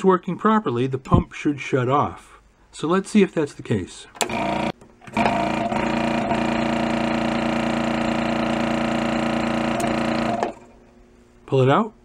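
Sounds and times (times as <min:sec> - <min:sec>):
vacuum pump humming: 0:04.2 - 0:10.8.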